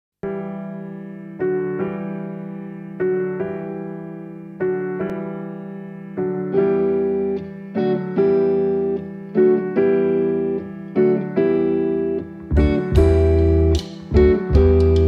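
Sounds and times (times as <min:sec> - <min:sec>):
electric piano chords: 0:00.2 - 0:15.0.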